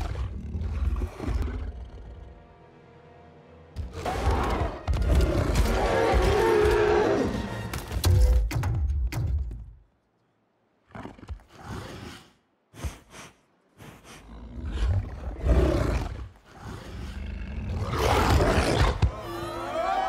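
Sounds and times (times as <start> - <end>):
wolf growling and snarling: 14.2 - 19.2.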